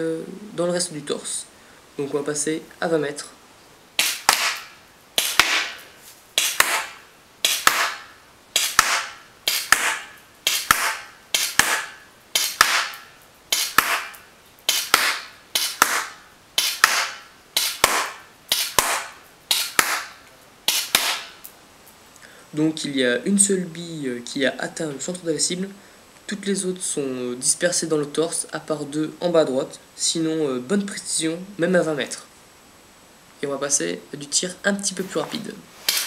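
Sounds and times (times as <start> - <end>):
airsoft pistol shots with hiss: 4.0 - 21.5, 35.8 - 36.0.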